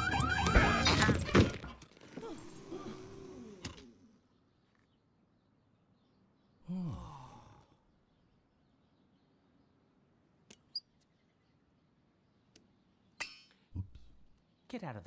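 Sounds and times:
person sighing: 0:02.2 - 0:03.7, 0:06.6 - 0:07.8.

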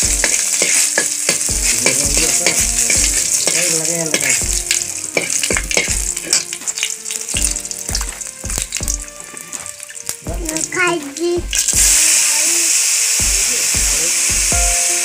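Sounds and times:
steel ladle scraping a pan: 0:00.0 - 0:10.2
garlic sizzling in hot oil: 0:00.0 - 0:15.0.

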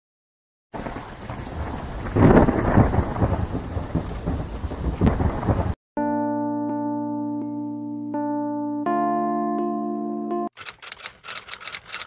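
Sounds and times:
rolling thunder: 0:00.8 - 0:05.8
steady rain: 0:00.8 - 0:05.8.

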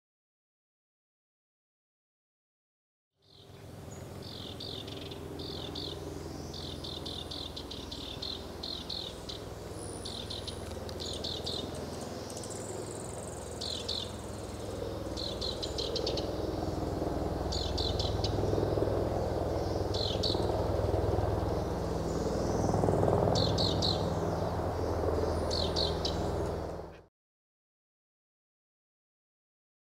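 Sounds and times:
wren trilling song: 0:03.2 - 0:27.0
helicopter drone: 0:03.2 - 0:27.1.

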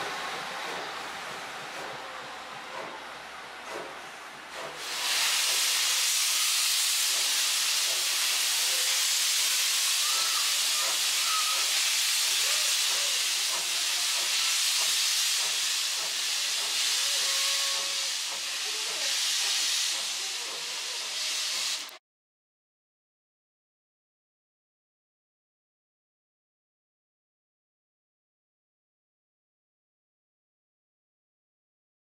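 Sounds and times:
steam locomotive venting steam: 0:00.0 - 0:22.0.

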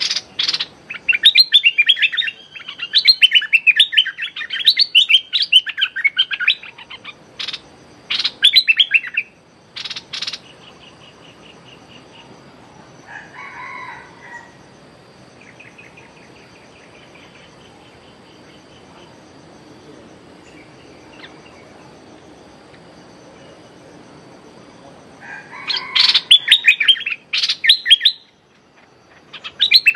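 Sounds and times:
bird chattering call: 0:00.0 - 0:12.4, 0:25.3 - 0:29.9.

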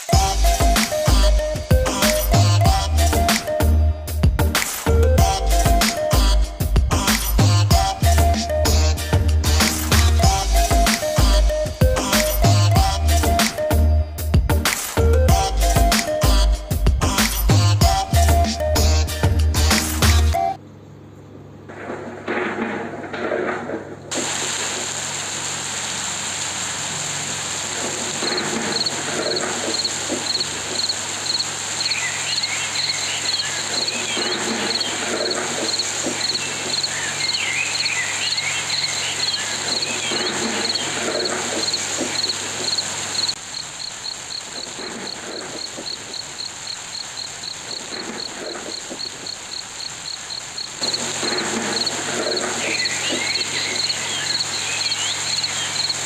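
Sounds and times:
constant hiss and hum: 0:00.0 - 0:56.0
crickets chirping: 0:27.5 - 0:56.0
higher irregular chirps: 0:28.2 - 0:56.0.

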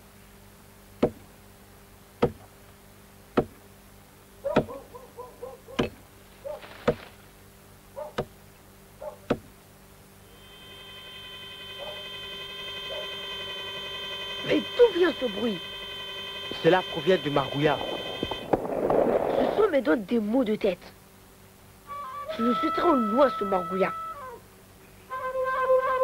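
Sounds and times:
axe chopping into tree trunk: 0:01.0 - 0:01.3, 0:02.2 - 0:02.5, 0:03.3 - 0:03.6, 0:05.8 - 0:06.0, 0:06.6 - 0:07.2, 0:08.2 - 0:08.4, 0:09.3 - 0:09.5
steady high ringing tone: 0:10.2 - 0:18.5, 0:21.9 - 0:24.2.

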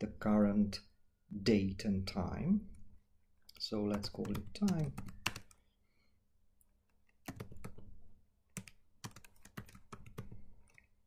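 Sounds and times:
computer keyboard keystroke clicks: 0:03.5 - 0:05.6, 0:07.2 - 0:07.8.

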